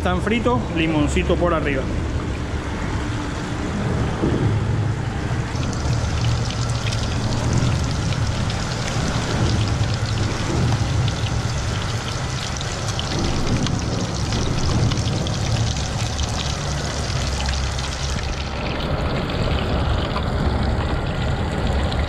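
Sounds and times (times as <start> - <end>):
low steady rumble: 0.0 - 22.0
fish sizzling in hot oil: 5.5 - 18.5.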